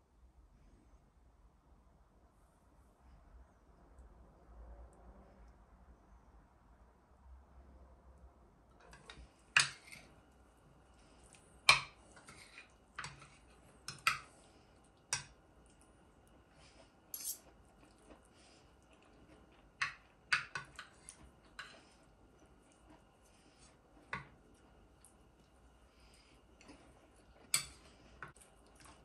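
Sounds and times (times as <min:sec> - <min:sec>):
metal cutlery clinking on dishes: 0:17.1 - 0:17.5.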